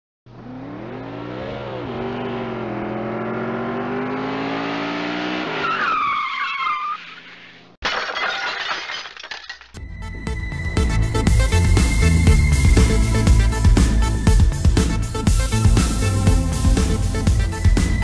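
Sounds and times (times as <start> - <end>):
car engine revving: 0.3 - 5.7.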